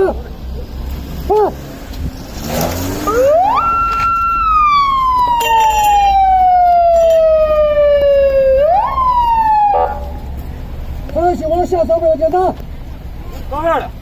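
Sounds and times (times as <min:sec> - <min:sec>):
police siren wailing: 0:03.0 - 0:10.3.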